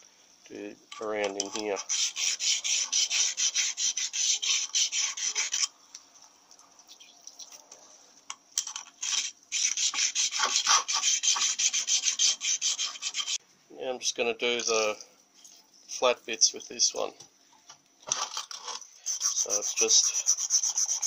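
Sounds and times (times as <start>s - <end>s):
stone rubbing on cast iron: 1.4s - 5.7s, 9.0s - 13.4s, 18.6s - 21.0s.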